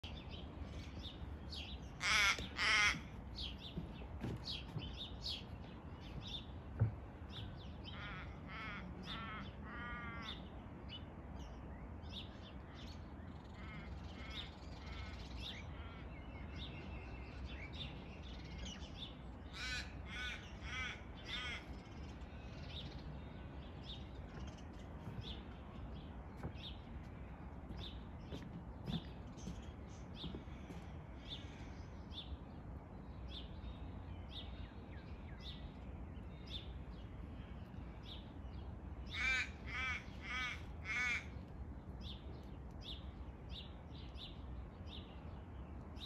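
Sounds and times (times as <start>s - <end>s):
crow-like caws: 2.0s - 3.2s, 7.9s - 10.4s, 13.6s - 15.2s, 19.5s - 21.7s, 39.1s - 41.4s.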